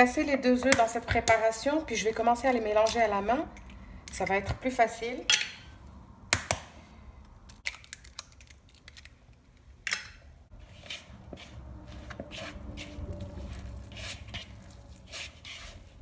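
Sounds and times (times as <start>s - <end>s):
hand kneading sticky dough: 10.5s - 16.0s.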